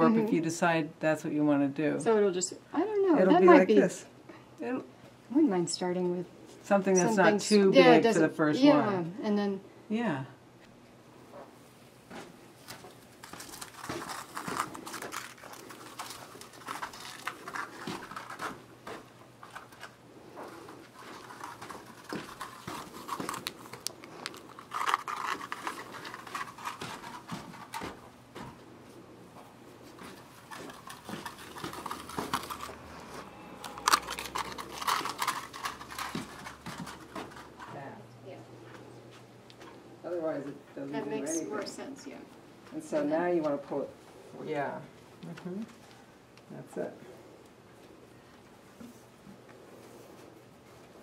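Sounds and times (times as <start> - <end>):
yarn rustling and scratching: 12.6 - 28.2, 29.6 - 37.9.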